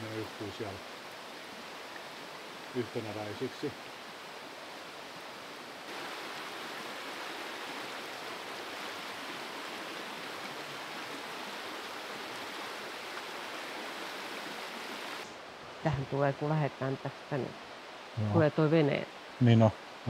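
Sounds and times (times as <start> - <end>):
river water rushing over rapids: 0.0 - 15.9.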